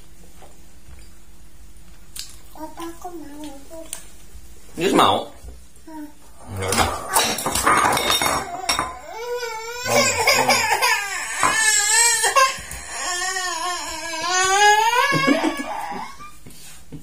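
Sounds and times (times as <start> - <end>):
young child crying: 8.3 - 16.4.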